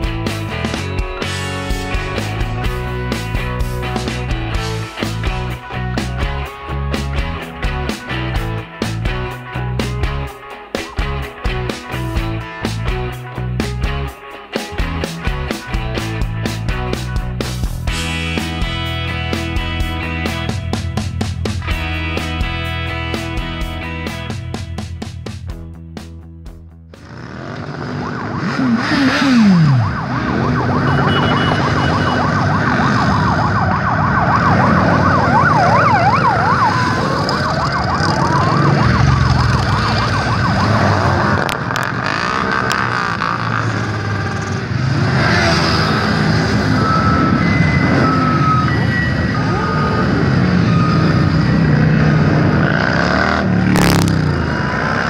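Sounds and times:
motorcycle engines rumbling past: 0:27.0 - 0:55.0
siren wailing: 0:27.6 - 0:55.0.

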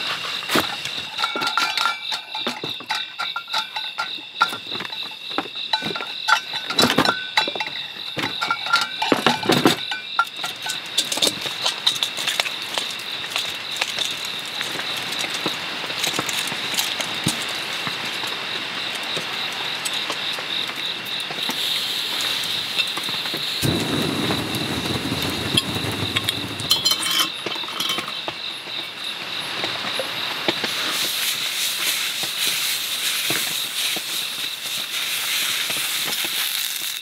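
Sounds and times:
crickets trilling: 0:00.0 - 0:37.0
clinks: 0:00.7 - 0:15.4, 0:25.2 - 0:28.4
rain on a shelter: 0:10.4 - 0:37.0
rush of low noise: 0:23.6 - 0:27.0.

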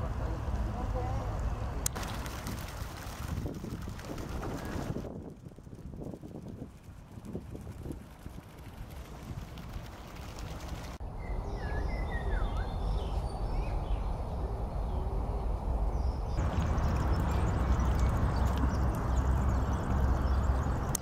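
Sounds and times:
small birds chirping: 0:09.8 - 0:21.0
low rumble: 0:13.4 - 0:21.0
steady rushing noise: 0:15.6 - 0:21.0.

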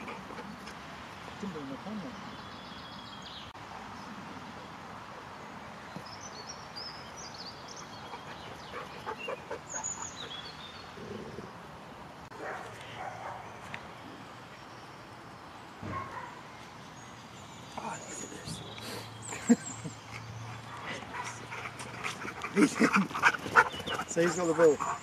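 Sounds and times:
birds chirping: 0:00.0 - 0:25.0
outdoor noise: 0:00.0 - 0:25.0.

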